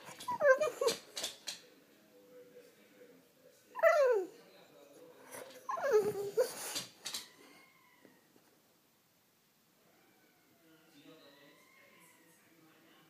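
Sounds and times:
dog whining: 0.0s - 1.1s, 3.8s - 4.3s, 5.6s - 8.2s.

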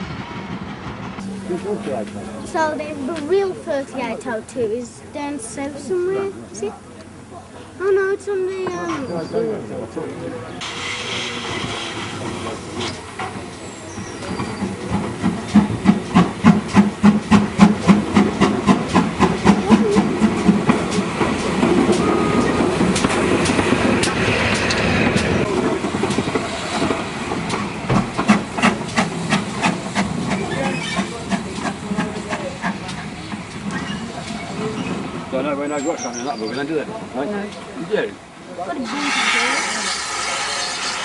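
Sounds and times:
steam locomotives rolling past: 0.0s - 41.0s
steam hiss: 10.6s - 25.5s, 26.2s - 35.2s, 38.8s - 41.0s.

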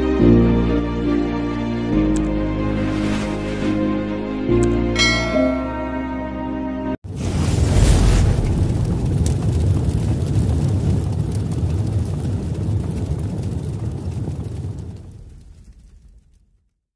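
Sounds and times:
deep noisy rumble: 7.1s - 16.4s.

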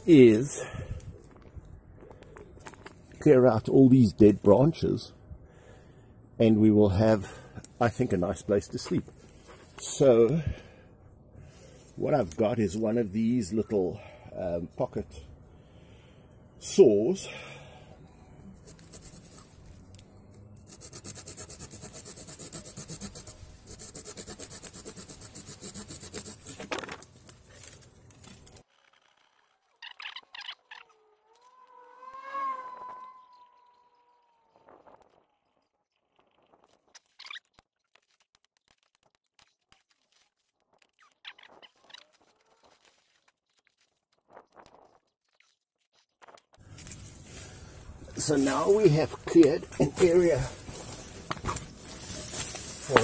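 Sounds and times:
small saw cutting a branch: 18.6s - 26.8s
dry twigs and leaves crackling: 26.1s - 28.7s, 36.2s - 53.0s
twigs snapping: 49.9s - 53.0s.

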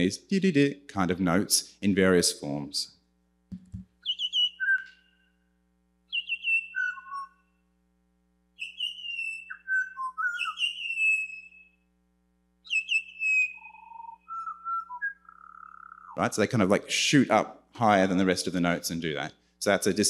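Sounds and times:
bird singing whistled notes: 4.0s - 5.4s, 6.1s - 7.6s, 8.6s - 11.8s, 12.6s - 16.2s.

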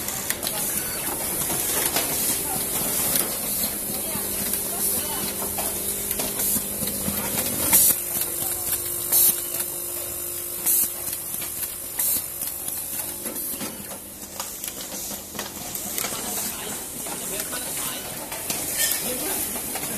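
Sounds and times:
machine hum: 0.0s - 14.2s.

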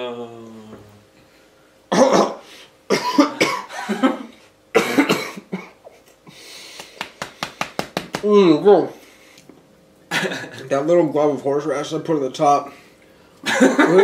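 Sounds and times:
man coughing harshly: 1.9s - 5.8s.

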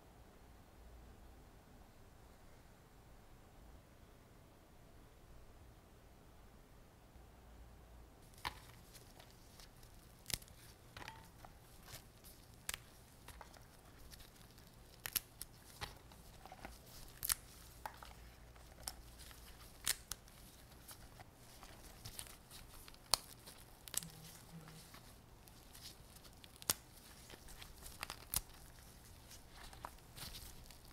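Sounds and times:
pepper stems snapping: 8.3s - 30.9s.

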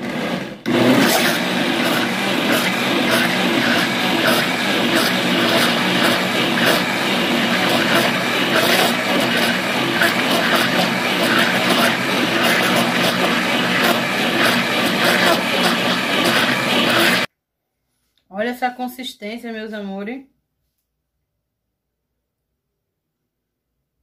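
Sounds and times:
blender motor humming: 0.0s - 17.3s.

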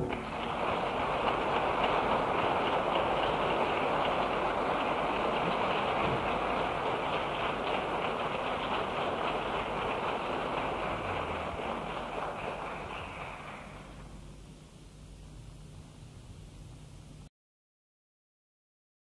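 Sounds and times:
audience applauding: 0.0s - 14.2s.

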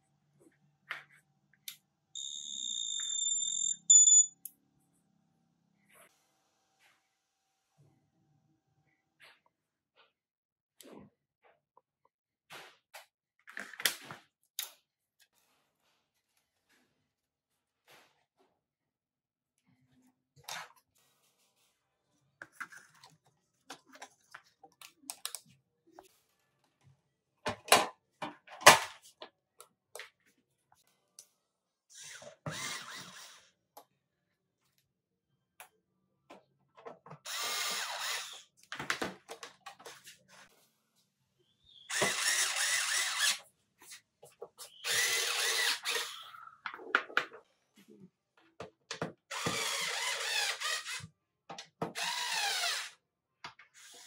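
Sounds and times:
cordless screwdriver driving screws: 41.9s - 43.4s, 44.8s - 46.2s.

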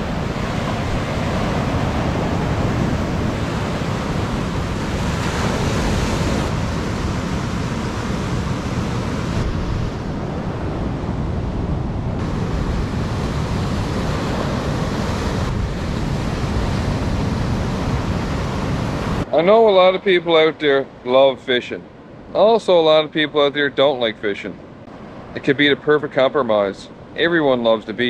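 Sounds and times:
wind buffeting microphone: 0.0s - 19.3s
ocean surf breaking: 0.0s - 28.0s.

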